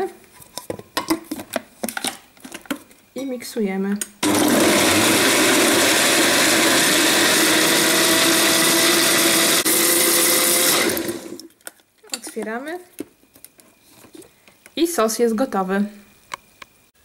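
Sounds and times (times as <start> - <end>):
blender running: 4.2 - 11.5.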